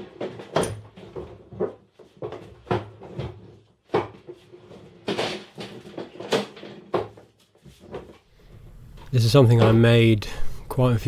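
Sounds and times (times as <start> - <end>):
wooden table knocks and clunks: 0.0 - 8.2.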